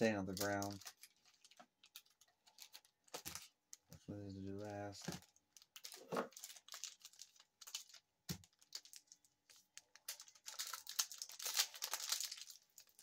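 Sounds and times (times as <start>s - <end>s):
plastic wrapper crinkling and tearing: 0.0s - 4.0s, 4.6s - 13.0s.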